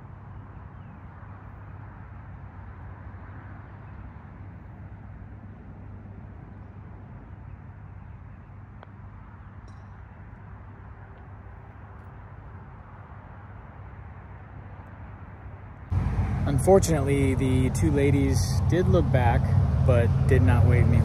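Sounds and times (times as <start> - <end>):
low rumble: 15.9 - 21.0.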